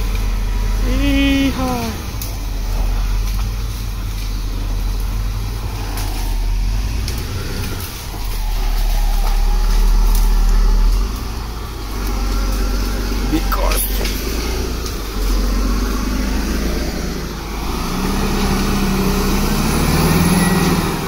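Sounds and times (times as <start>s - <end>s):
bulldozer diesel engine running hard: 0.0s - 21.0s.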